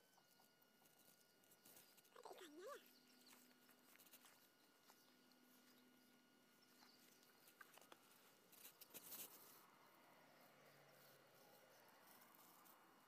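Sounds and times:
soft clicks and rustles: 2.9s - 9.7s.

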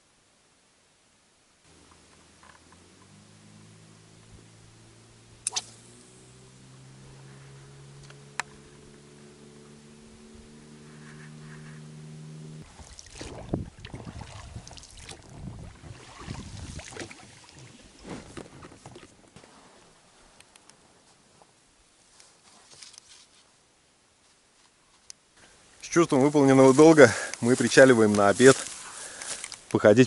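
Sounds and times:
steady low hum: 1.7s - 14.5s
boat splashes and knocks: 12.6s - 19.1s.

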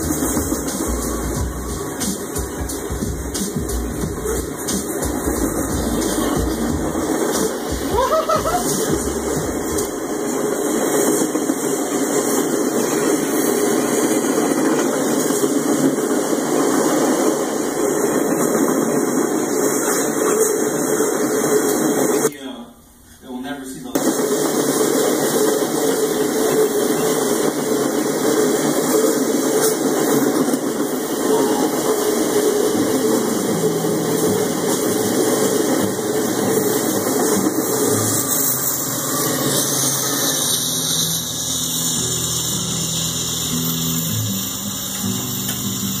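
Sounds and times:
diesel locomotive engine drone: 0.0s - 22.3s, 24.0s - 46.0s
train wheels rumbling on rails: 0.0s - 22.3s, 24.0s - 46.0s
wheel squeal: 36.4s - 46.0s.

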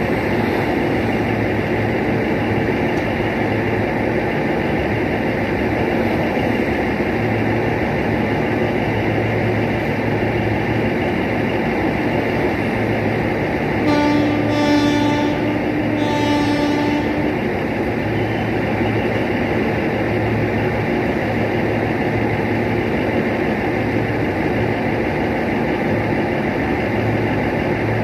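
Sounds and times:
train wheels rumbling and rattling: 0.0s - 28.0s
train horn: 13.8s - 18.4s.

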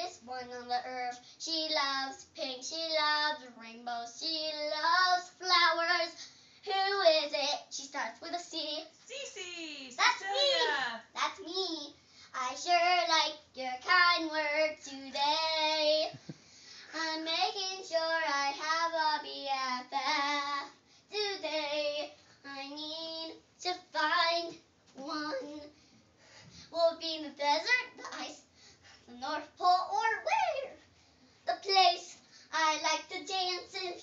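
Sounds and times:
girl singing unaccompanied: 0.0s - 16.3s, 16.9s - 25.8s, 26.7s - 30.8s, 31.4s - 34.0s.

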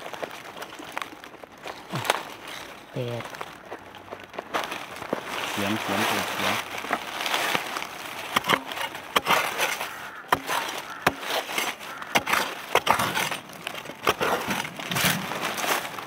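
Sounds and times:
loose dirt scratching: 0.0s - 16.0s
metal blade striking soil: 8.3s - 15.9s.

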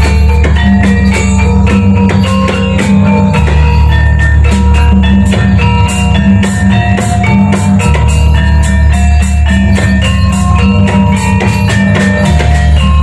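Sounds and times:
drum strokes: 0.0s - 13.0s
heavy bass: 0.0s - 13.0s
metallophones ringing melody: 0.0s - 13.0s.

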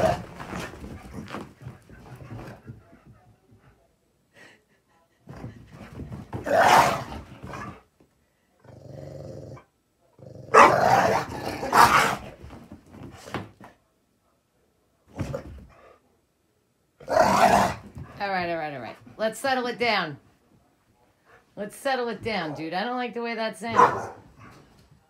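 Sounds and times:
dogs growling and barking: 0.0s - 2.6s, 6.3s - 7.8s, 8.7s - 12.4s, 17.0s - 18.0s, 23.8s - 24.6s.

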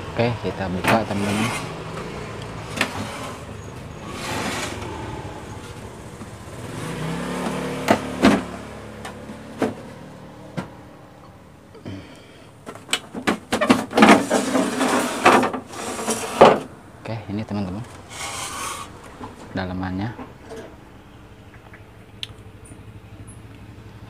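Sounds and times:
plastic rattling and scraping: 0.8s - 4.9s, 7.4s - 10.0s, 12.6s - 16.7s.

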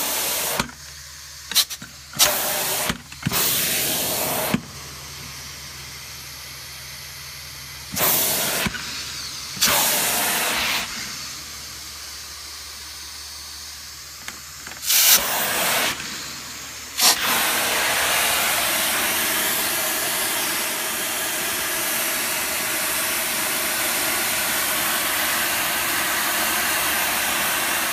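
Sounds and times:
carpet extraction wand hissing: 0.0s - 27.9s.

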